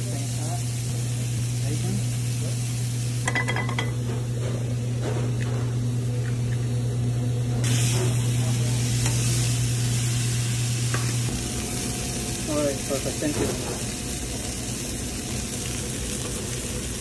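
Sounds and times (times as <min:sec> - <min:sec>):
meat sizzling on a griddle: 0:00.0 - 0:03.9, 0:07.6 - 0:17.0.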